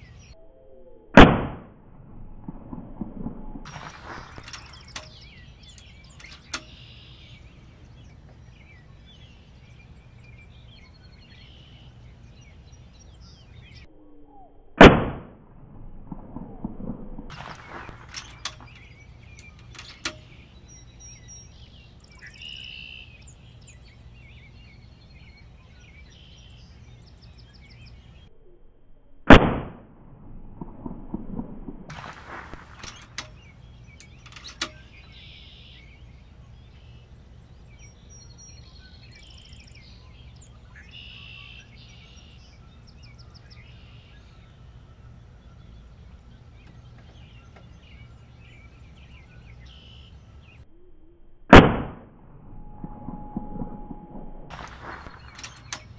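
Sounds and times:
birds chirping faintly: 0:00.0 - 0:00.8, 0:03.7 - 0:14.6, 0:17.3 - 0:28.6, 0:31.9 - 0:51.2, 0:54.5 - 0:55.9
air rifle shot crack: 0:01.2 - 0:01.7, 0:14.8 - 0:15.4, 0:29.3 - 0:29.9, 0:51.5 - 0:52.2
handling clicks and rustling: 0:03.7 - 0:07.0, 0:17.3 - 0:20.5, 0:31.9 - 0:35.0, 0:54.5 - 0:55.9.

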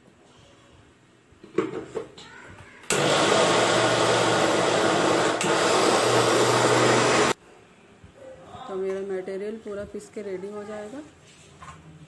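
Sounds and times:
mixer grinder motor running: 0:02.9 - 0:07.4.

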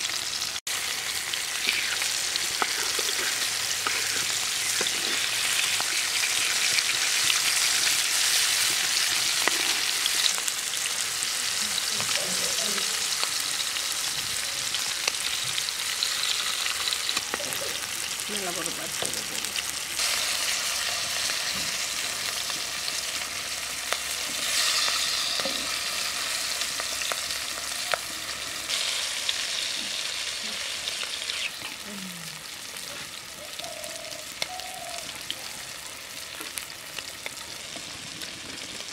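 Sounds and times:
fish frying in hot oil: 0:00.0 - 0:38.9.

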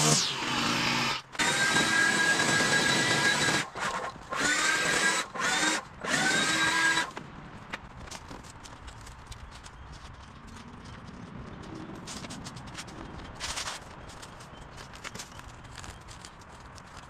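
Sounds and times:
leaf blower whining: 0:00.0 - 0:07.1.

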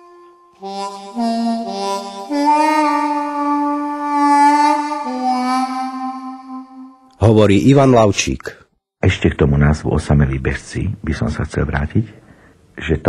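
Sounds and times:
wind instrument long notes: 0:00.0 - 0:07.2.

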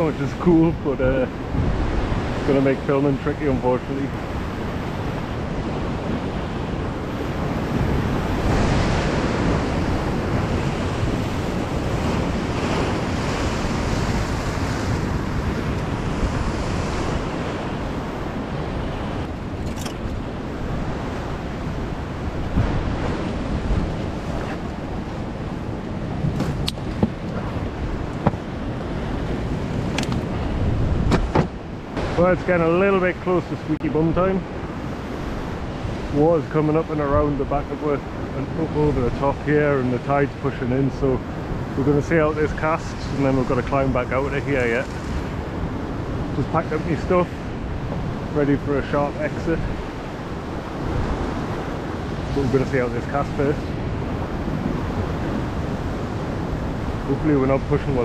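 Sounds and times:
surf washing against rocks: 0:00.0 - 0:58.0
wind buffeting microphone: 0:00.0 - 0:58.0
sharp knocks: 0:28.2 - 0:28.4, 0:31.0 - 0:31.6.

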